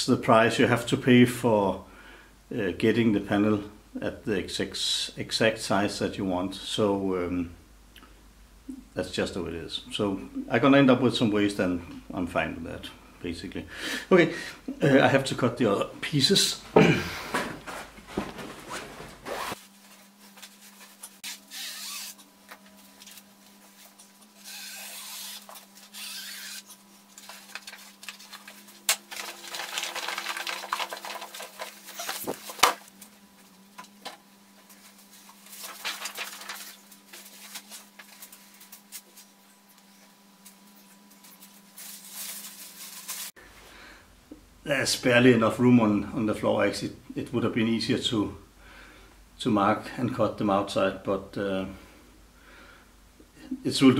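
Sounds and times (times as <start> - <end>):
plastic sheet rustling and crackling: 26.9 - 33.0, 34.6 - 39.4, 41.1 - 43.4.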